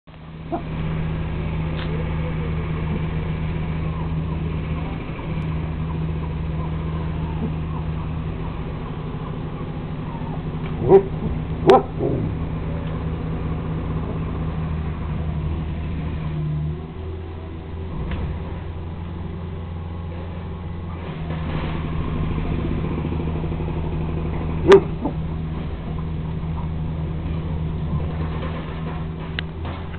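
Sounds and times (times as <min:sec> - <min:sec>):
steady low hum: 0:00.1 - 0:29.9
dog yipping: 0:10.1 - 0:12.3, 0:24.6 - 0:25.2.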